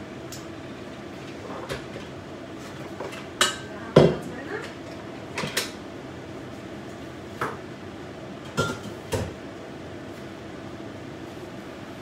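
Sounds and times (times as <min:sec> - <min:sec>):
utensils and dishes clattering: 0:08.5 - 0:09.3.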